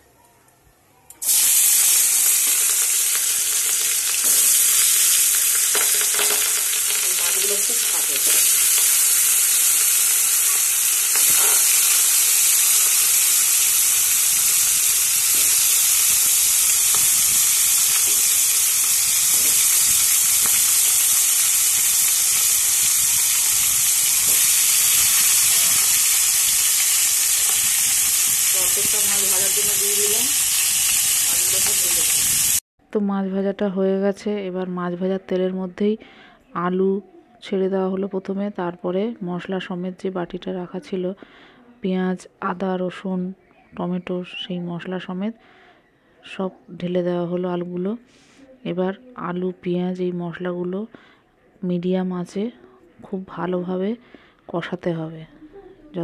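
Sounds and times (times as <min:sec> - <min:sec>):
fish sizzling in hot oil: 0:01.2 - 0:32.6.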